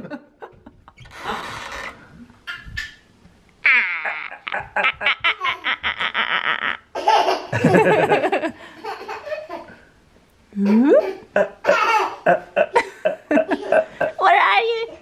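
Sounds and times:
toddler laughing: 2.4 - 3.0, 3.6 - 8.2, 8.8 - 9.8, 10.7 - 12.5.

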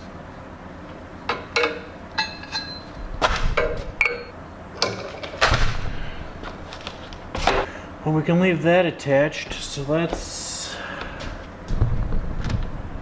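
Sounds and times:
hand tools clanking on metal fittings: 1.3 - 2.9.

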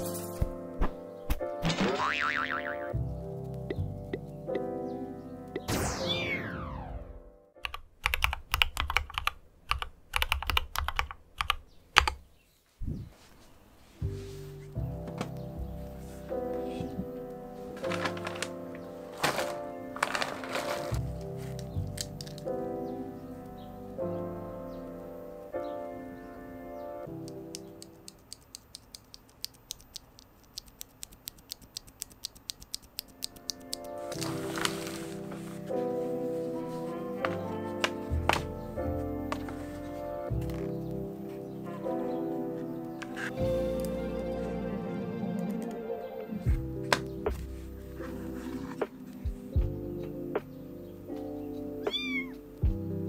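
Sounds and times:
music with falling tone: 1.6 - 7.4
mechanical keyboard keystrokes: 7.6 - 12.2.

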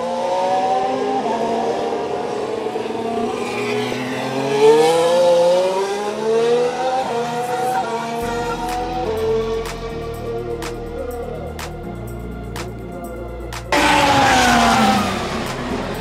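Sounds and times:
racing car engines revving: 0.0 - 16.0.

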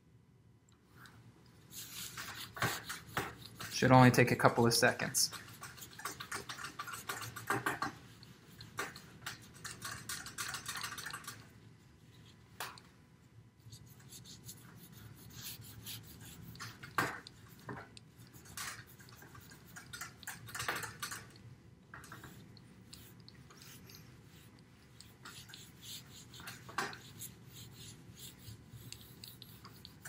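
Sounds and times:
paper towel wiping table: 1.7 - 11.2, 13.6 - 20.2, 22.1 - 30.0.

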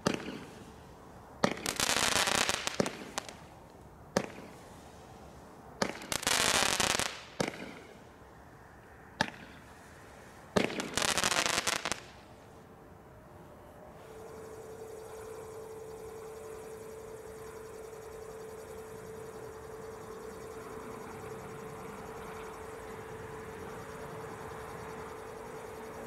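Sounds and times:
firework bangs: 10.5 - 12.1.

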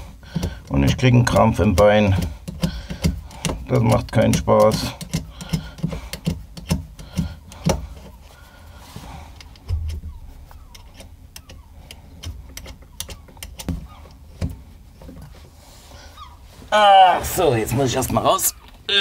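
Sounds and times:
clicks and knocks of tools: 0.3 - 8.2, 9.3 - 15.4.

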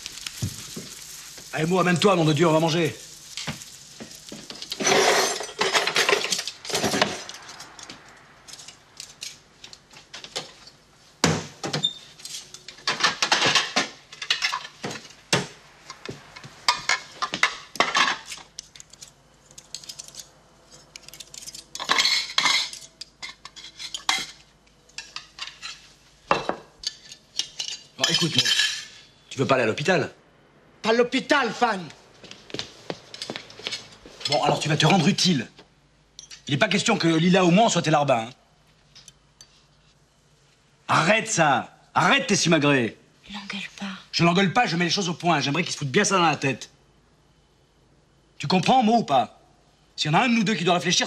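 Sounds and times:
plates and cutlery clattering: 4.7 - 7.3, 11.7 - 15.1, 21.0 - 29.0.

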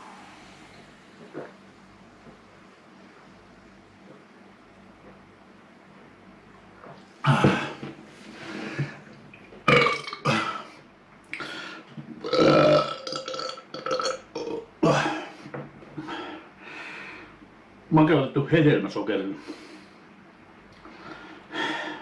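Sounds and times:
man burping: 7.2 - 7.8, 9.7 - 10.7, 12.2 - 15.4.

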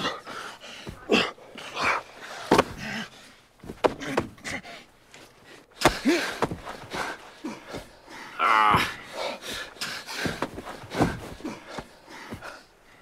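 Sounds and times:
men breathing hard and gasping: 0.0 - 13.0
rustling of bodies moving: 0.0 - 13.0
man grunting: 8.3 - 9.1.

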